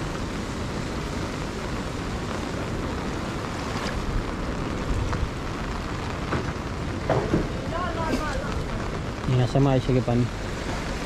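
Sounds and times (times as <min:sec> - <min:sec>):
falling rain: 0:00.0 - 0:11.0
flood-swollen river rushing: 0:00.0 - 0:11.0.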